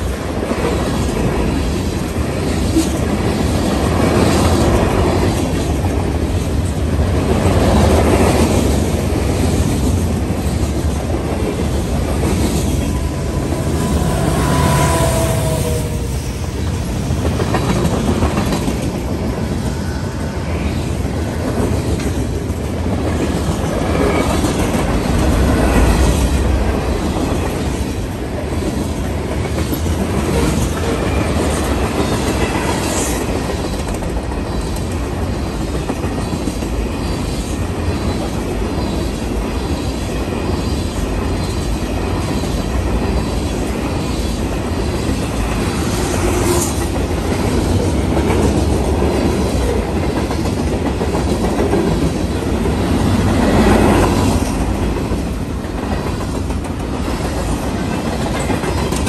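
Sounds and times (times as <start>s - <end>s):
clickety-clack over rail joints: 0.0s - 59.0s
train wheels rumbling on rails: 0.0s - 59.0s.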